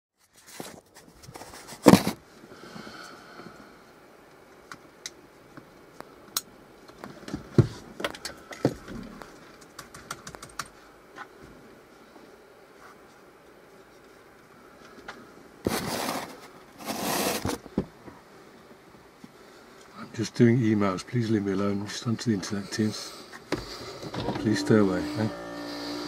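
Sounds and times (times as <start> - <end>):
laptop keyboard typing: 9.6 - 10.8.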